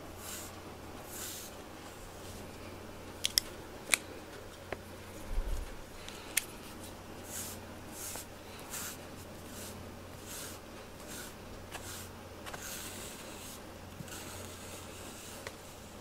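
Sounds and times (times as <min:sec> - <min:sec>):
brush swishing through fur: 0:06.7 - 0:16.0.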